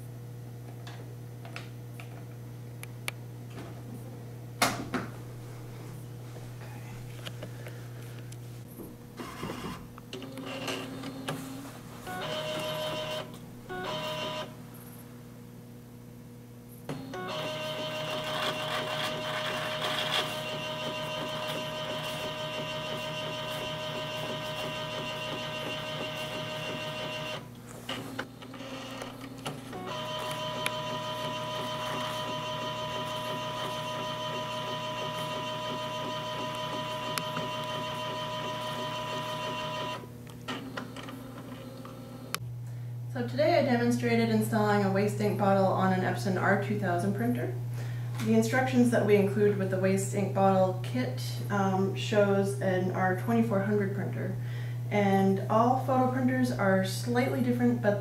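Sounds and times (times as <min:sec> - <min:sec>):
printer motors whining: 0:09.2 - 0:14.5, 0:16.9 - 0:42.4.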